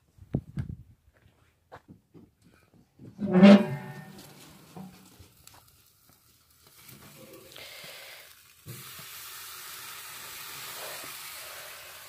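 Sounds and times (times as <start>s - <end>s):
meat sizzling on grill: 4.5s - 12.0s.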